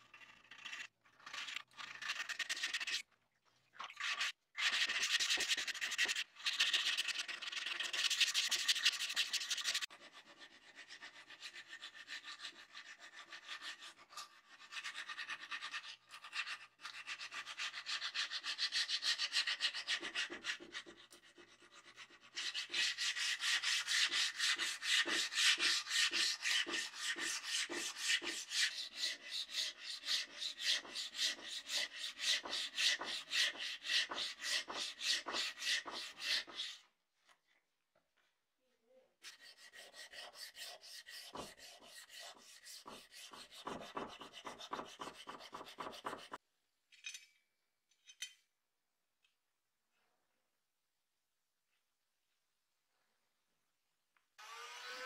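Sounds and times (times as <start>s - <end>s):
abrasive paper rubbing on metal blade: 10.6s - 36.8s, 39.2s - 46.4s.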